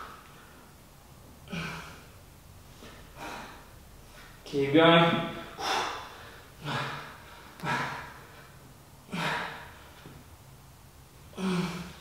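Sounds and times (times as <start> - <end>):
man breathing heavily: 1.4 - 4.5, 5.2 - 10.3, 11.2 - 12.0.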